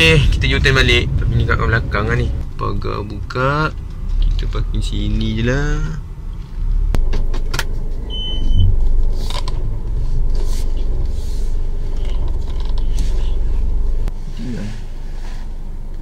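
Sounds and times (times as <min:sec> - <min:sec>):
car engine rumbling: 0:00.0 - 0:16.0
brief high beep: 0:08.1 - 0:08.7.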